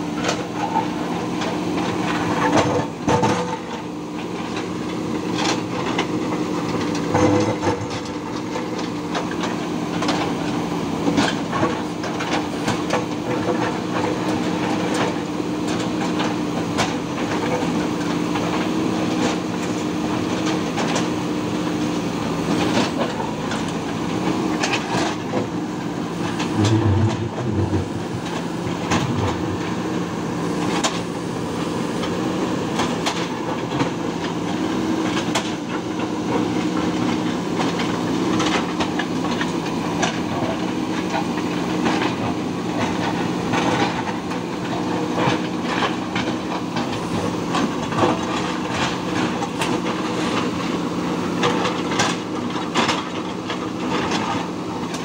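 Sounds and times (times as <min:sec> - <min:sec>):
diesel engines running: 0:00.0 - 0:55.0
stone clanking in buckets: 0:26.4 - 0:29.7
deep thumps: 0:26.6 - 0:29.6.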